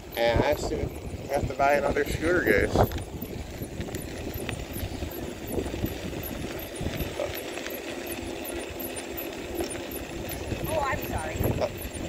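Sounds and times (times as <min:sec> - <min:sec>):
wind rumble on microphone: 0:00.0 - 0:07.4, 0:09.9 - 0:12.0
electric scooter motor whine: 0:00.0 - 0:12.0.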